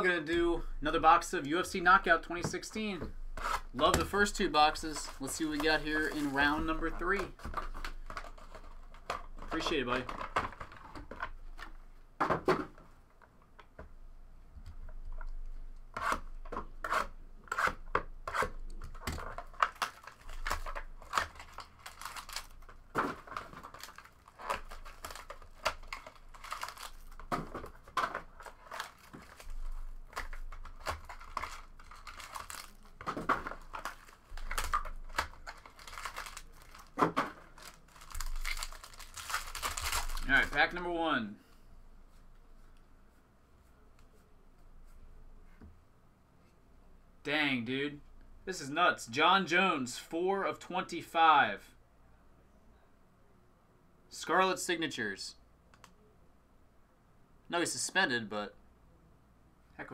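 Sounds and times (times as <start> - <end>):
foil wrappers crinkling and tearing: 4.7 - 7.0, 19.2 - 40.7.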